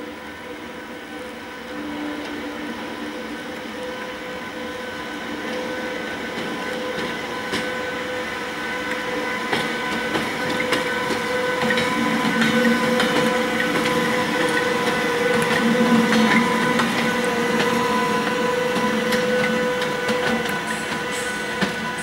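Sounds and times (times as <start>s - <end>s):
electric locomotive whine: 0.0s - 22.0s
wheels clicking over rail joints: 8.9s - 22.0s.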